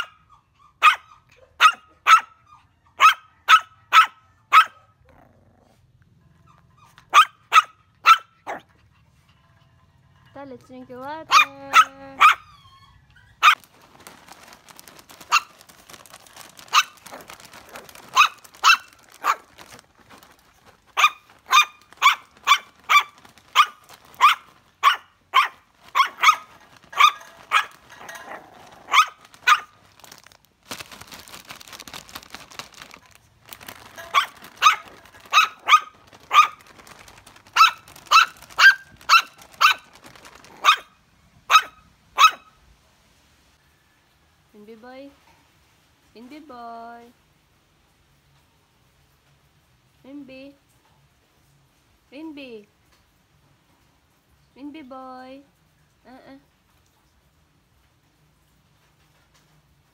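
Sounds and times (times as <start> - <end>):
puppy yapping: 0.0 - 5.0, 6.4 - 8.7, 11.3 - 13.7, 15.2 - 16.0, 16.6 - 20.3, 20.9 - 30.2, 32.6 - 42.5.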